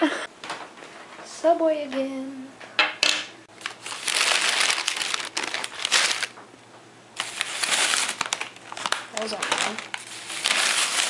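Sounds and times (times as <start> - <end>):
plastic bag crinkling: 3.5 - 6.4, 7.2 - 11.0.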